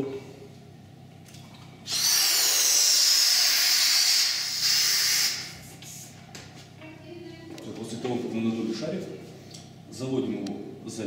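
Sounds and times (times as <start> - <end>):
gas hissing into balloon: 1.9 - 6.2.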